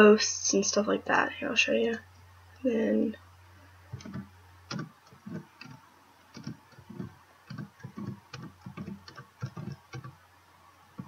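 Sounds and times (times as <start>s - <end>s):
faint low hum: 0.0s - 11.0s
keyboard and mouse clicking: 3.9s - 10.2s.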